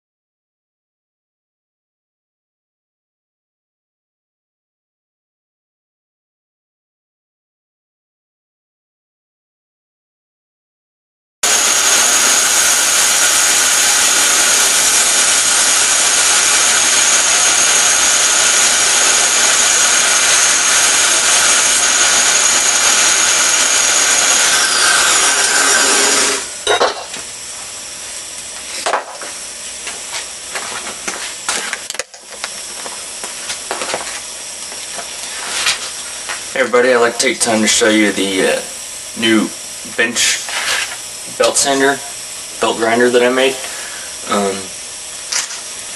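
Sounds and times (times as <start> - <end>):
belt grinder running: 11.4 - 27.2, 41.0 - 45.9.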